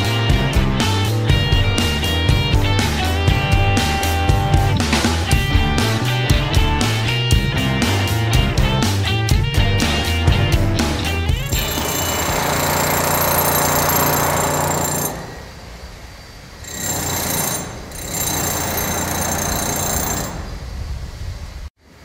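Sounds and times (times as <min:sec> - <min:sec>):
heavy construction machinery rattling: 0:11.4 - 0:15.6, 0:16.7 - 0:20.5.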